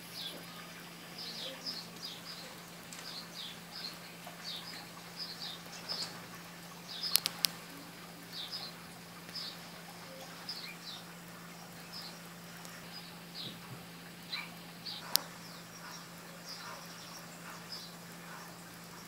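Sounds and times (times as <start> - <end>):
sparrows chirping: 0.0 - 19.0
steady low hum: 0.0 - 19.0
sharp clicks: 7.0 - 7.6.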